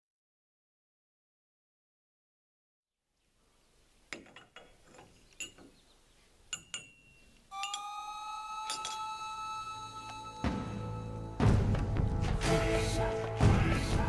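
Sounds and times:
teaspoon clinking in coffee cup: 0:06.5 - 0:07.9, 0:08.6 - 0:09.1
held musical tones: 0:07.4 - 0:14.0.

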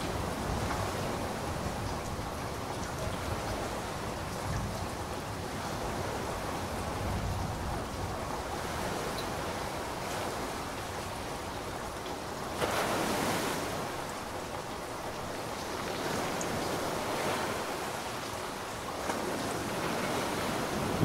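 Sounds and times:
ocean waves washing: 0:00.0 - 0:21.0.

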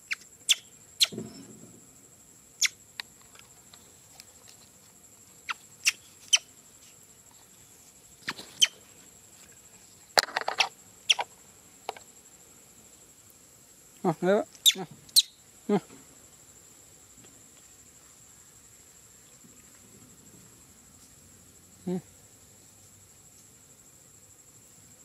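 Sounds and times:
baby monkey squealing: 0:08.6 - 0:08.8, 0:14.6 - 0:15.4.

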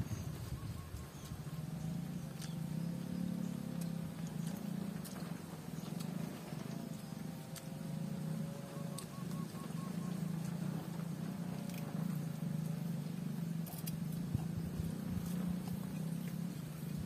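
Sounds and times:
low motor drone: 0:00.0 - 0:17.0
faint high chirps: 0:08.4 - 0:10.6.

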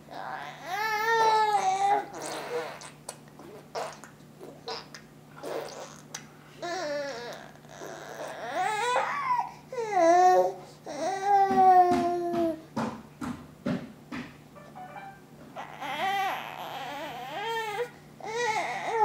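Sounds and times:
baby babbling: 0:15.6 - 0:19.0.

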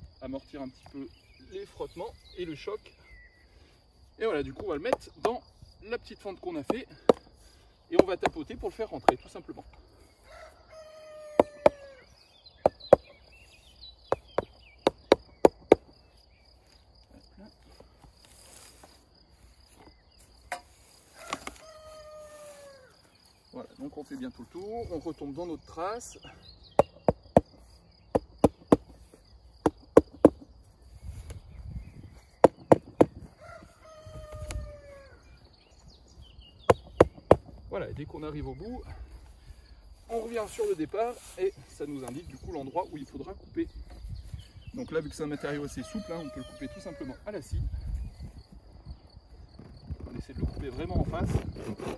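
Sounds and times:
high insect trill: 0:00.0 - 0:51.9
mallet tapping garden edging: 0:04.5 - 0:05.4, 0:07.9 - 0:09.4, 0:11.3 - 0:11.9, 0:12.6 - 0:13.2, 0:14.1 - 0:15.9, 0:26.8 - 0:29.0, 0:32.4 - 0:33.2
rooster crowing: 0:10.2 - 0:12.2, 0:21.1 - 0:23.0, 0:33.3 - 0:35.4, 0:45.3 - 0:47.2.

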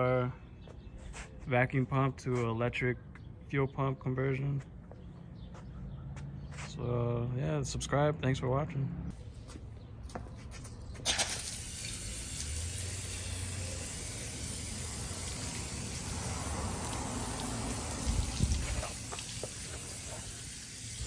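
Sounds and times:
hose spray hissing: 0:11.1 - 0:21.0.

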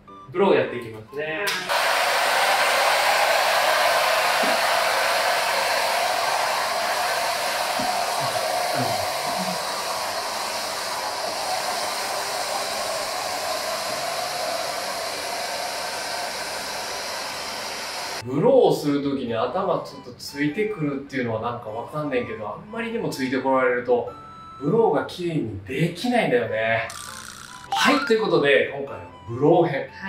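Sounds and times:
hair dryer blowing: 0:01.5 - 0:18.2.

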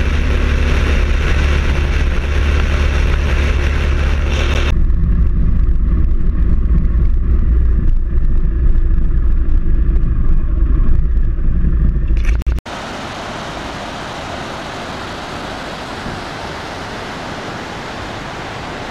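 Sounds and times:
motorcycle engine rumble: 0:00.0 - 0:12.5
steady rushing hiss: 0:12.7 - 0:18.9.

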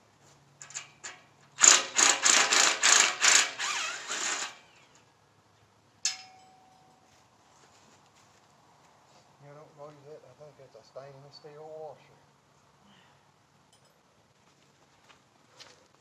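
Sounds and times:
sharp metal clank ringing: 0:06.0 - 0:07.0.

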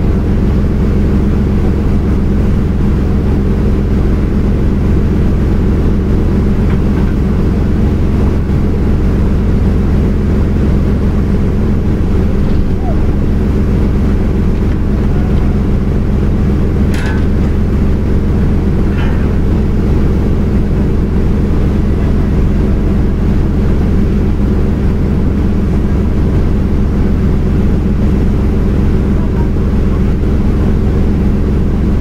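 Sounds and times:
boat engine drone: 0:00.0 - 0:32.0
high-pitched calls: 0:12.6 - 0:13.3.

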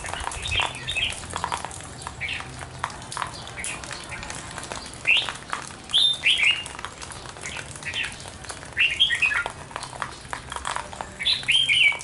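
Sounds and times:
bird chirping: 0:00.0 - 0:02.6, 0:03.3 - 0:09.5, 0:11.2 - 0:12.0.

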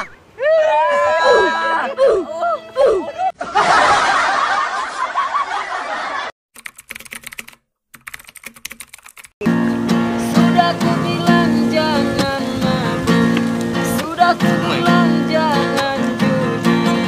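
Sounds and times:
laughter: 0:03.1 - 0:06.3
keyboard typing clicks: 0:06.6 - 0:09.3
acoustic guitar strumming: 0:09.4 - 0:17.0
man singing: 0:10.2 - 0:17.0.

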